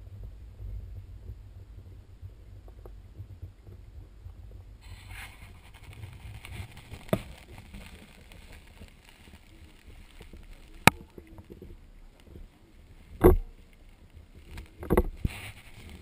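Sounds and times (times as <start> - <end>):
rustling hiss: 0.0 - 16.0
fur rubbing on microphone: 4.8 - 10.9, 14.4 - 16.0.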